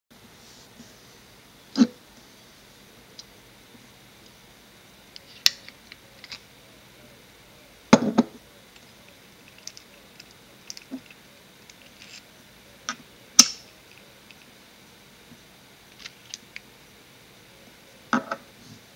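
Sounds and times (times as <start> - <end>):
sharp click: 12.9 - 13.7.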